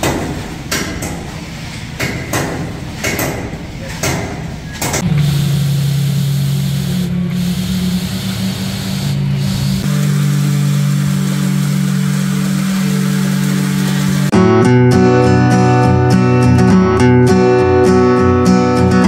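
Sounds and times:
sharp knocks: 0:02.0 - 0:05.1
engine hum: 0:04.7 - 0:14.4
machinery rough drone: 0:05.0 - 0:14.4.

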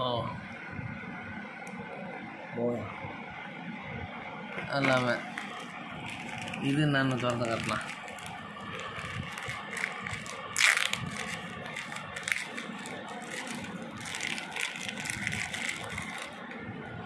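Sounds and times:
plastic bag crinkling: 0:04.9 - 0:16.4.

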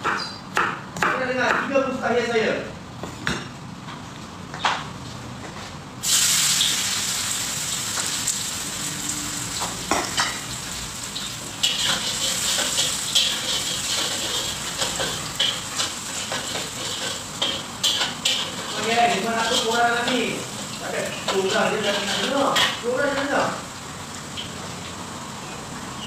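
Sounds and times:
hot oil sizzling in a wok: 0:06.0 - 0:26.0
metal utensil scraping a wok: 0:11.2 - 0:20.3, 0:21.1 - 0:22.8.

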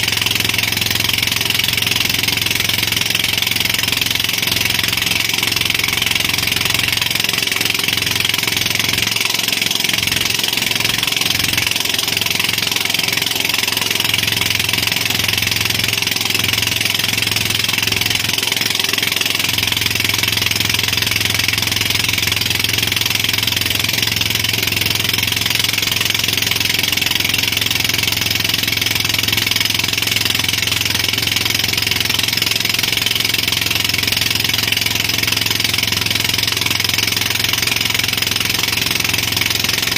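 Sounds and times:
boat engine running: 0:00.0 - 0:39.9.

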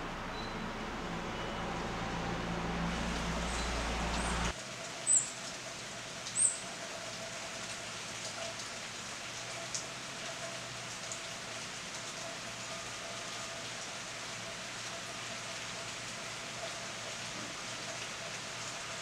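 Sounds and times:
steady rain falling: 0:00.0 - 0:19.0.

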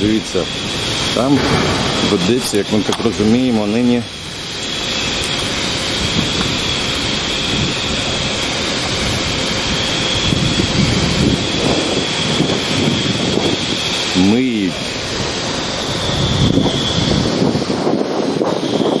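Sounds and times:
faint high whine: 0:00.0 - 0:19.0
low rumble: 0:00.9 - 0:04.4.

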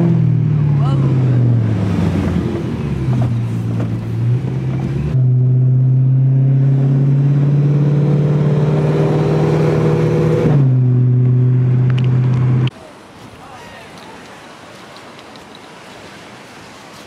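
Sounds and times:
car engine cruising: 0:00.0 - 0:12.7.

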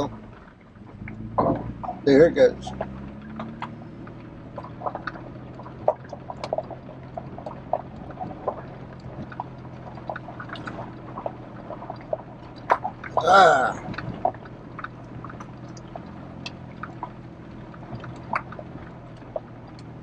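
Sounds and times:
truck engine low hum: 0:00.0 - 0:20.0
clicks and knocks from truck: 0:02.7 - 0:12.0.

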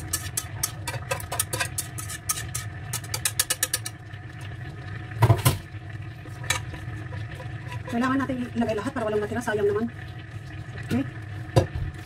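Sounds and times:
whisk scraping a frying pan: 0:00.0 - 0:04.0, 0:06.2 - 0:09.5.

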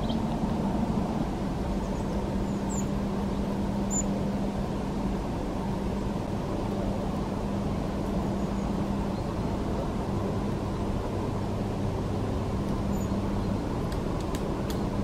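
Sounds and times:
small bird chirps: 0:00.0 - 0:00.5, 0:01.8 - 0:02.9
faint hum: 0:00.0 - 0:15.0.

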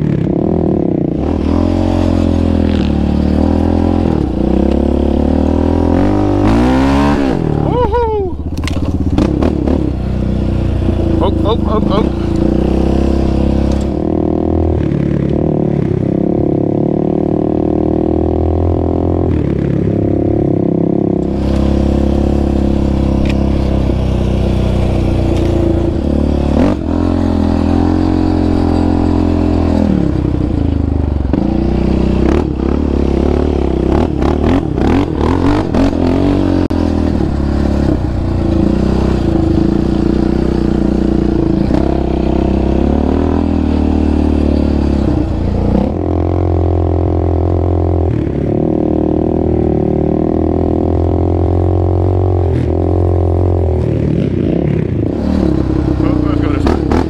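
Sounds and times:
quad bike engine revving: 0:00.0 - 0:57.0
rattling and clatter over rough ground: 0:08.4 - 0:10.2.

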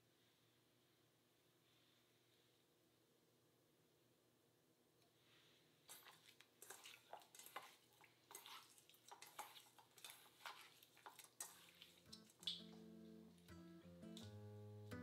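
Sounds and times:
wet squishes of raw meat: 0:05.9 - 0:13.5.

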